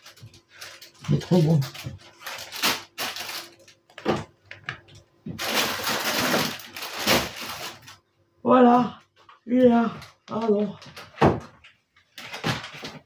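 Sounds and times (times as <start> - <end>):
plastic bag crinkling: 0.0 - 4.0, 5.3 - 8.0.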